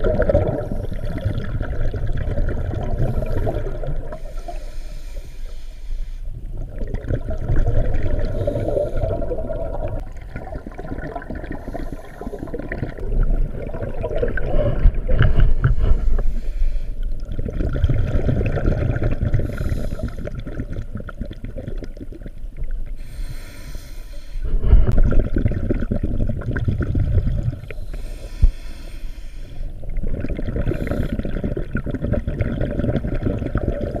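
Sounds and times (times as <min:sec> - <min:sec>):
exhaled air bubbling underwater: 0:00.0 - 0:34.0
regulator inhalation hiss: 0:04.1 - 0:06.3, 0:15.9 - 0:17.0, 0:19.4 - 0:20.2, 0:23.0 - 0:24.5, 0:27.7 - 0:29.8.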